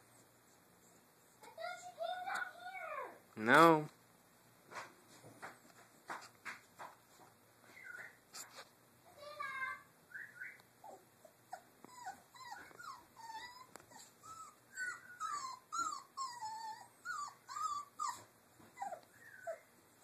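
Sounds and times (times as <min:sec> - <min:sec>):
puppies whimpering: 0:10.8 - 0:20.0.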